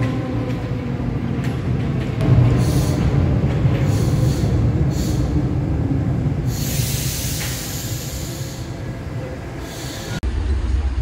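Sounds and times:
subway train rumbling: 0.0 - 11.0
rushing hiss: 2.2 - 10.2.

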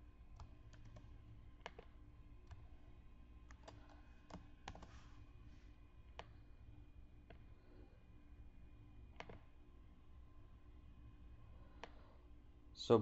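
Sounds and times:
low room hum: 0.0 - 13.0
mouse and keyboard clicks: 0.4 - 2.6, 3.5 - 5.0, 9.2 - 9.4.

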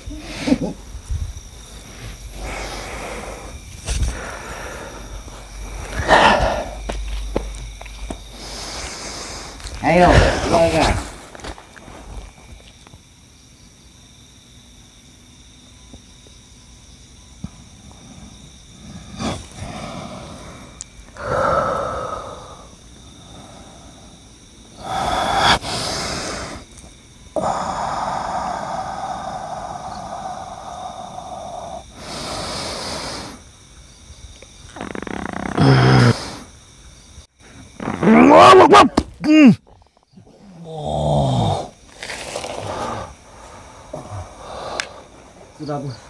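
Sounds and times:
man breathing heavily: 0.0 - 12.3, 17.8 - 26.7, 27.3 - 33.4, 42.5 - 46.0
man snorting: 2.4 - 7.0, 8.4 - 11.1, 18.9 - 22.7, 34.9 - 36.5.

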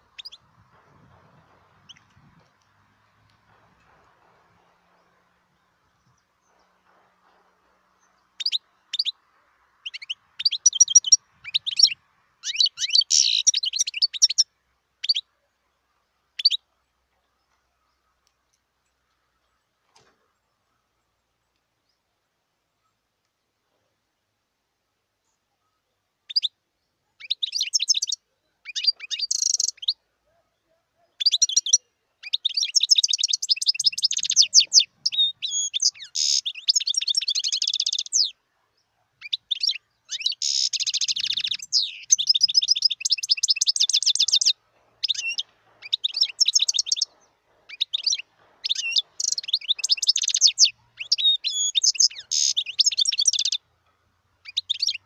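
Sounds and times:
goldfinch twittering song: 0.0 - 7.0, 7.9 - 15.3, 16.3 - 16.7, 27.2 - 30.0, 31.1 - 53.6, 54.4 - 55.0.

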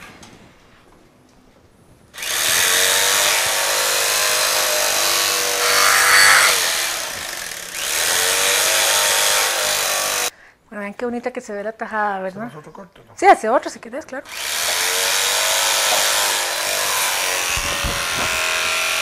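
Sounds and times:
electric carving knife running: 2.2 - 10.3, 14.3 - 19.0.

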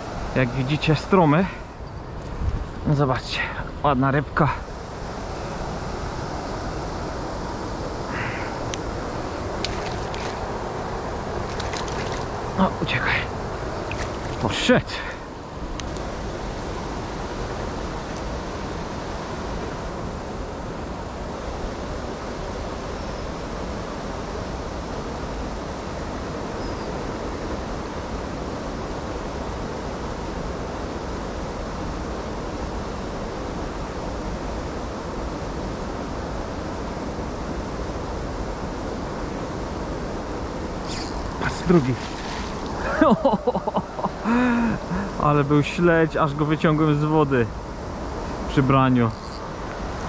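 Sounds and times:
river water rushing over weir: 4.7 - 20.1, 40.7 - 46.0.

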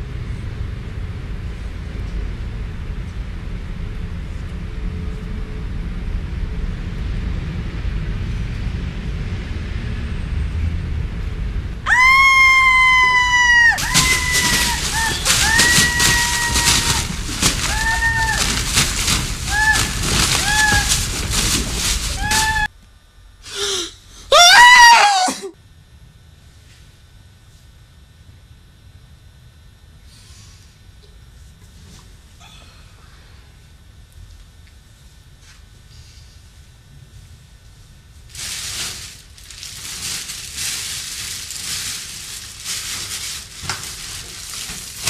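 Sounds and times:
man screaming: 11.9 - 18.6, 19.4 - 21.0, 22.1 - 22.7, 24.3 - 25.5
short cries: 11.9 - 22.7, 23.5 - 25.6
plastic bag crinkling: 13.6 - 22.7, 38.3 - 45.0
man gasping: 23.5 - 24.3.

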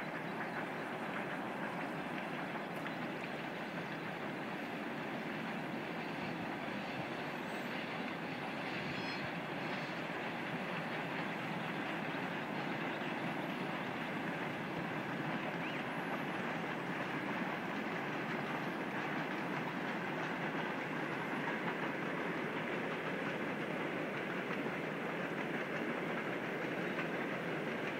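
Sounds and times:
distant freight train rattling: 0.0 - 27.9.

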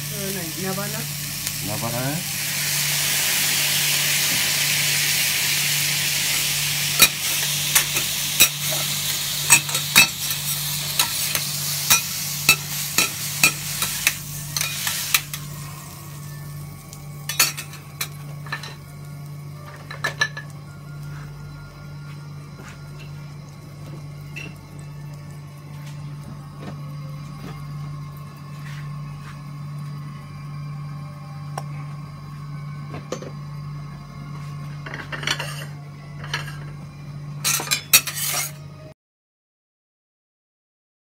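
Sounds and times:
liquid sizzling on a griddle: 0.0 - 21.6, 22.2 - 26.3
metal spatulas clacking and scraping: 37.4 - 38.6.

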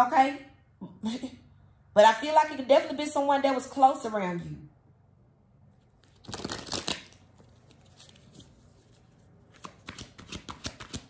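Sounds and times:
cards rustling: 6.0 - 11.0.

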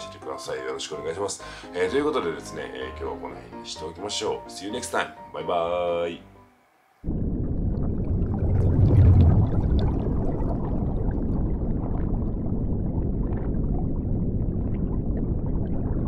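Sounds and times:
water bubbling and gurgling: 7.0 - 16.0
muffled underwater rumble: 7.1 - 16.0.

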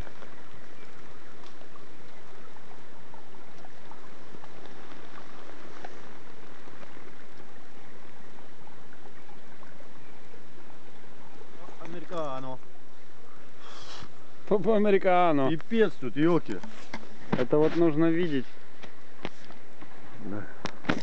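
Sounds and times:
faint ticks: 0.0 - 2.5
running water: 0.0 - 21.0.

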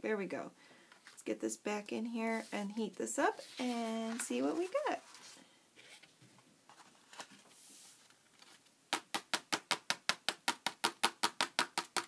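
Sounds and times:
paper rustling: 3.4 - 8.7
rapid taps on paper: 8.9 - 12.0.

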